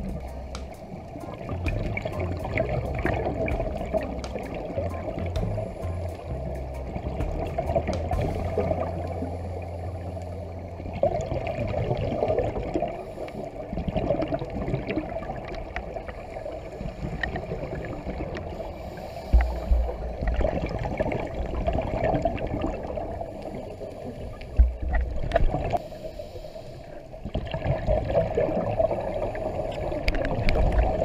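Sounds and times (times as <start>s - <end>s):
low thumps: 0.0s - 9.3s, 19.3s - 21.0s
low hum: 0.0s - 14.0s, 14.7s - 27.3s
muffled underwater water noise: 0.0s - 31.0s
small clicks and crackles: 0.1s - 5.4s.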